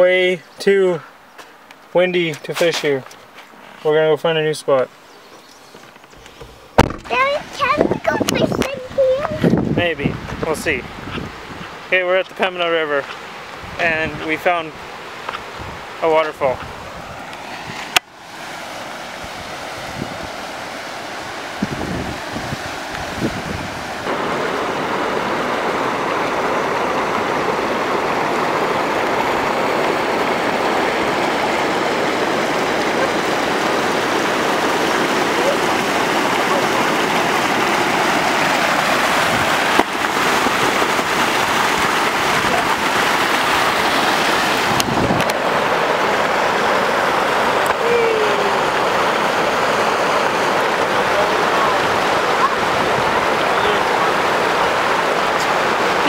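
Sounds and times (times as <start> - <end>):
water pouring over waterfall: 24.0 - 56.0.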